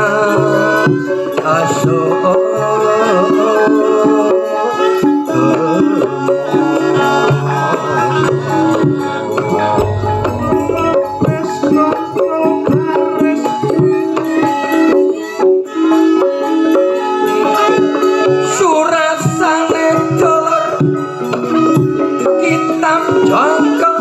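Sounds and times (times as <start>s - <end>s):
drum strokes: 7.4s - 14.0s
wavering melody line: 7.6s - 12.6s
metallophone notes: 7.6s - 12.9s.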